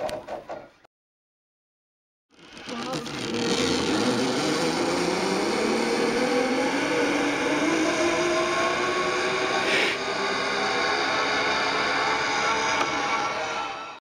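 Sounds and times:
zip line pulleys whirring on cable: 2.3s - 14.0s
rushing hiss: 9.6s - 10.0s.

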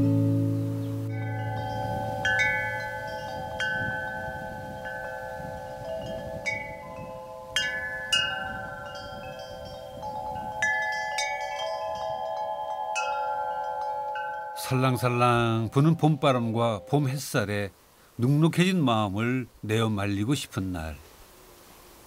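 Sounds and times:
metal wind chime ringing: 1.1s - 17.3s.

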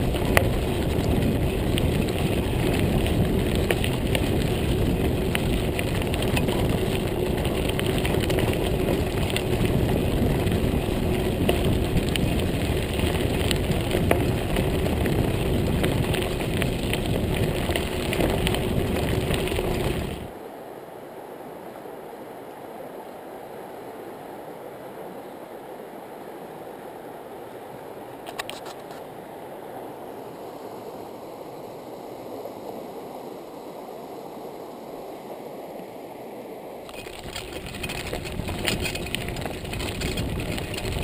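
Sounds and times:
bike tyres on gravel: 0.0s - 20.4s, 36.9s - 41.0s
wind rush on microphone: 0.0s - 20.4s, 36.8s - 41.0s
small rattling clicks: 36.9s - 41.0s.

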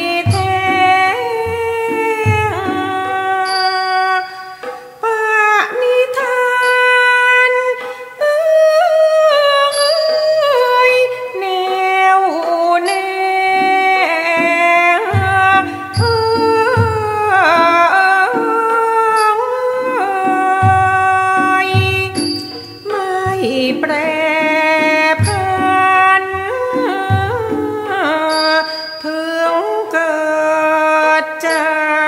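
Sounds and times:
person singing: 0.0s - 32.0s
small cymbals ringing: 0.0s - 32.0s
low drum strokes: 0.1s - 3.6s, 15.0s - 17.9s, 20.6s - 28.2s.

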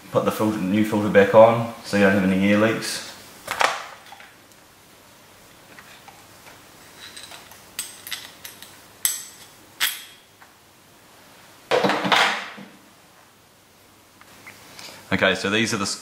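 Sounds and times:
metal parts scraping: 6.9s - 10.2s
small metal parts clinking: 7.0s - 10.2s.

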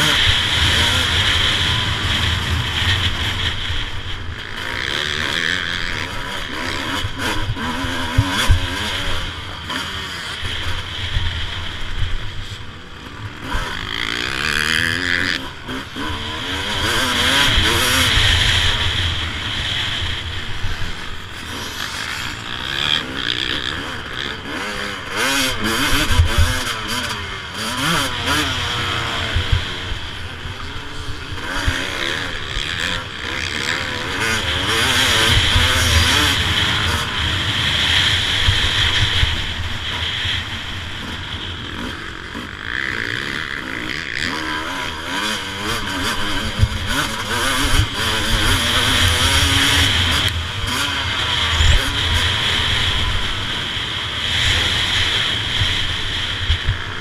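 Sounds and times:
motocross engine revving: 0.0s - 57.0s.

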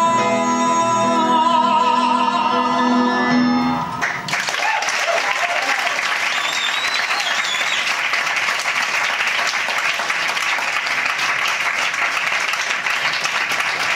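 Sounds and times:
audience applauding: 3.9s - 13.9s
high whistle: 6.2s - 8.0s.

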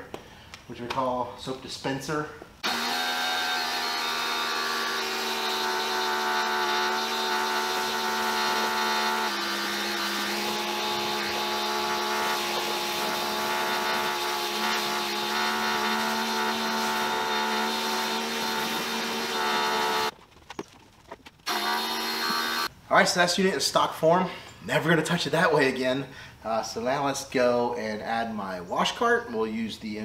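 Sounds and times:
pressure washer motor hum: 2.6s - 20.1s, 21.5s - 22.7s
water spray hissing: 4.8s - 20.1s.

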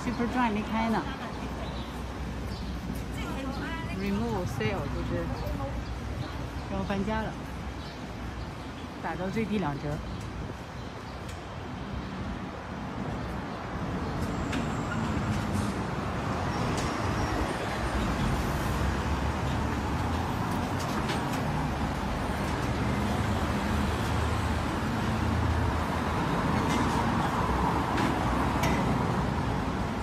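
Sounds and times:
vehicles passing: 0.0s - 30.0s.

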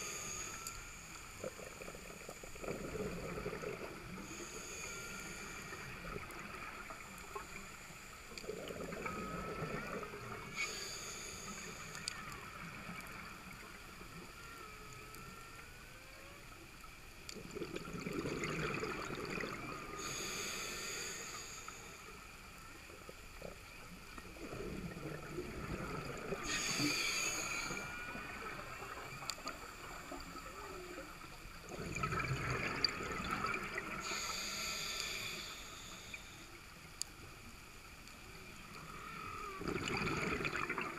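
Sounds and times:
regulator inhale hiss: 0.0s - 3.0s, 4.0s - 8.4s, 10.3s - 12.6s, 19.9s - 22.4s, 26.2s - 30.8s, 33.8s - 36.7s
exhale bubbling underwater: 1.4s - 7.7s, 8.4s - 10.8s, 17.4s - 20.5s, 24.2s - 34.8s, 38.8s - 40.9s.

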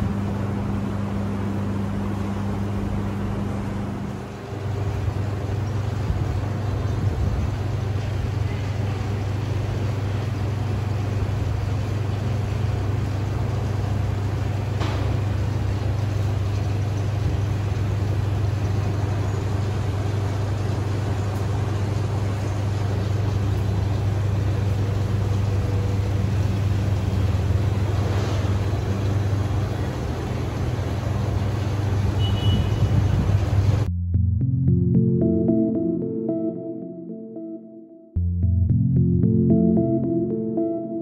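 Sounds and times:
tumble dryer running: 0.0s - 32.2s.

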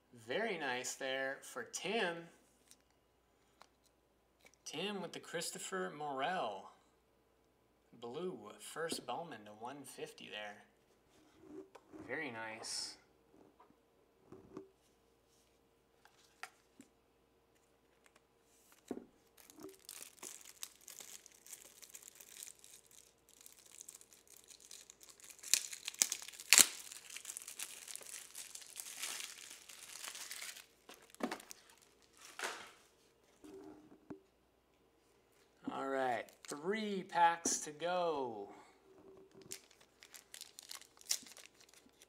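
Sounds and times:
foil wrapper tearing and crinkling: 19.4s - 32.4s, 39.3s - 42.0s.

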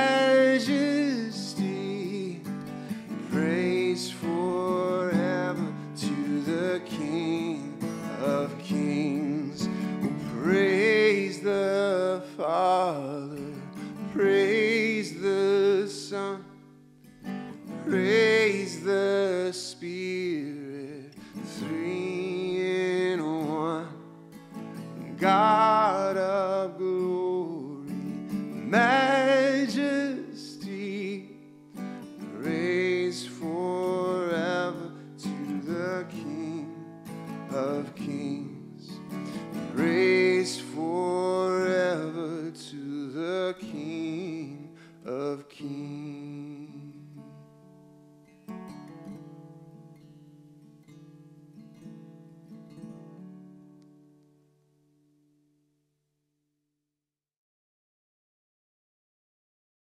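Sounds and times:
person singing with vibrato: 0.0s - 16.6s, 17.8s - 24.1s, 25.0s - 31.4s, 32.2s - 47.2s
acoustic guitar strumming: 0.0s - 55.4s.

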